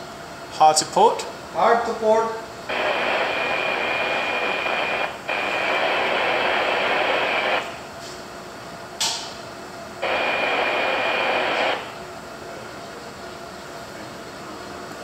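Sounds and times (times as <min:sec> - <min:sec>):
radio static hiss: 0:02.7 - 0:07.9, 0:10.0 - 0:12.1
sharp click: 0:09.0 - 0:09.4.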